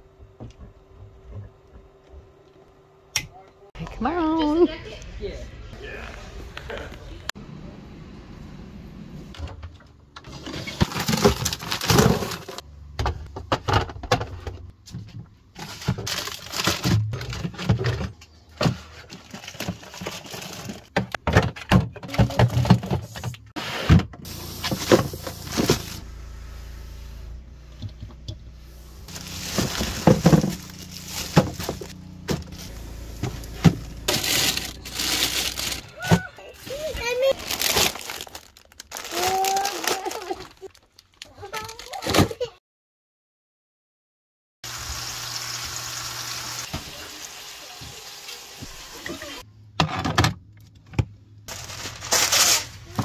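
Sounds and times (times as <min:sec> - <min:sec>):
plastic packaging rustling: 0:10.5 - 0:12.6, 0:15.5 - 0:17.8, 0:18.9 - 0:21.1, 0:29.0 - 0:36.0, 0:36.6 - 0:42.0, 0:51.5 - 0:53.0
items knocking on shelves: 0:29.1 - 0:36.3.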